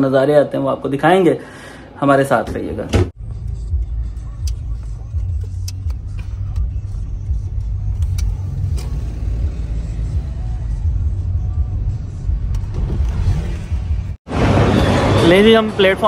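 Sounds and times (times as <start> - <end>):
car engine and tyres rumbling: 3.2 - 15.5.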